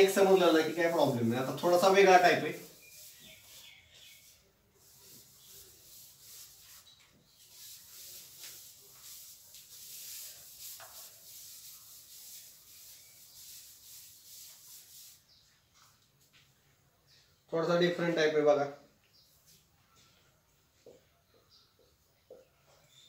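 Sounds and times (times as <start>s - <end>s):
eraser rubbing on whiteboard: 0.0s - 15.4s.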